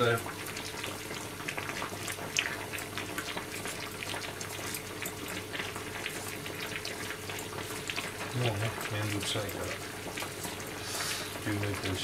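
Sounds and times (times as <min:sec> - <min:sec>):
water boiling and bubbling: 0:00.0 - 0:12.0.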